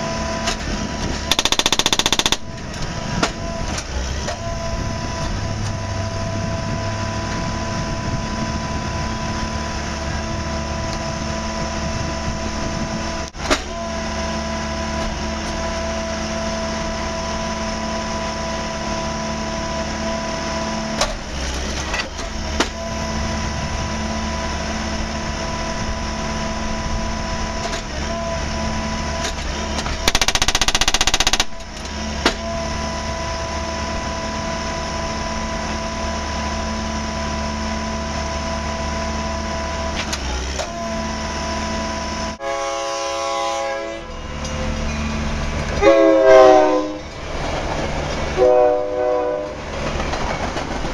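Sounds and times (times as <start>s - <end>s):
machine engine running: 0.0s - 5.2s, 29.4s - 33.6s
constant whine: 0.0s - 19.7s, 20.6s - 42.4s
rapid hammering: 1.3s - 2.5s, 30.1s - 31.6s
sharp metallic clanks: 1.3s - 3.4s.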